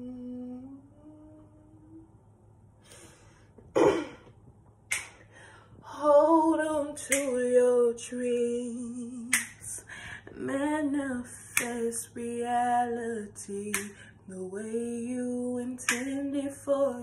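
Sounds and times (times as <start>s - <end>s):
woman singing unaccompanied: 0.0s - 2.2s, 5.8s - 17.0s
short sharp clicks: 4.9s - 5.2s.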